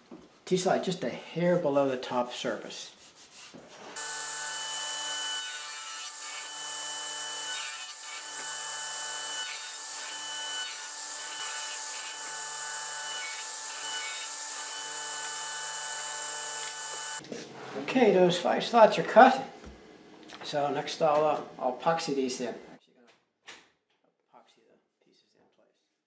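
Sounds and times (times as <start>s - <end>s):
radial arm saw cutting board: 4.0s - 17.2s.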